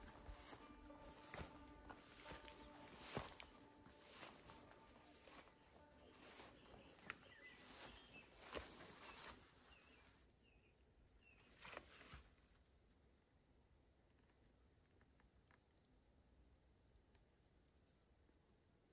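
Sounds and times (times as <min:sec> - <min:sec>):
soft steps or rustles: 0:00.0 - 0:10.1, 0:11.4 - 0:12.5
soft bird chirps: 0:03.0 - 0:12.1.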